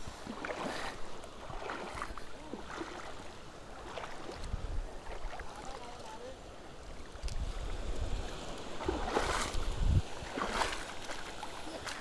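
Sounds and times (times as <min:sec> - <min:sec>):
sea water sloshing at shore: 0:00.0 - 0:12.0
wind rumbling on microphone: 0:03.7 - 0:05.9, 0:06.8 - 0:12.0.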